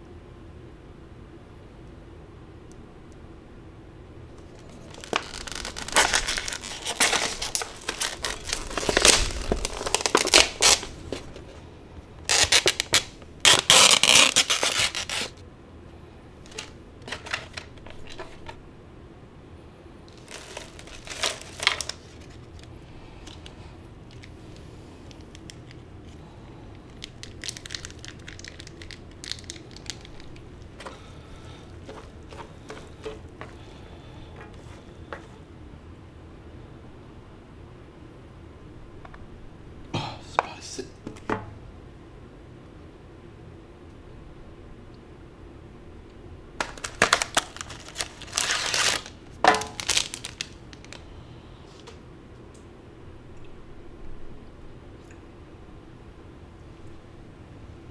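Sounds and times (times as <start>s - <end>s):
plastic packet crinkling: 4.4s - 11.5s, 12.2s - 15.4s, 16.4s - 18.6s, 20.1s - 33.3s, 46.6s - 51.1s.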